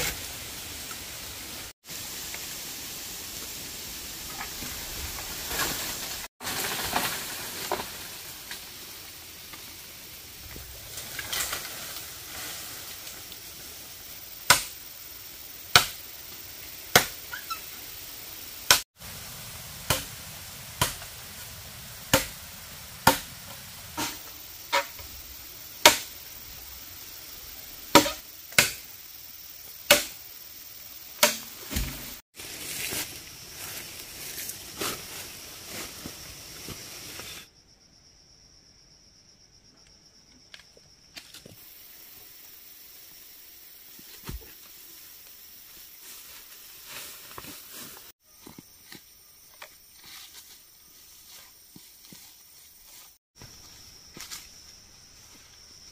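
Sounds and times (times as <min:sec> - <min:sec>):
hand tool striking bamboo: 0:14.5 - 0:14.8, 0:15.7 - 0:16.0, 0:16.9 - 0:17.2, 0:19.9 - 0:20.1, 0:20.8 - 0:21.1, 0:22.1 - 0:22.4, 0:23.0 - 0:23.3, 0:25.8 - 0:26.1, 0:27.9 - 0:28.8, 0:29.9 - 0:30.2, 0:31.2 - 0:32.1.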